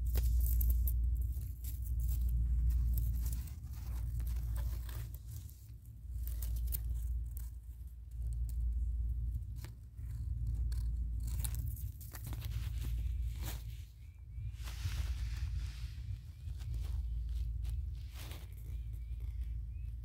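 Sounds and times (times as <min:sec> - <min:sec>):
dry grass and twigs crackling: 0:00.0 - 0:20.0.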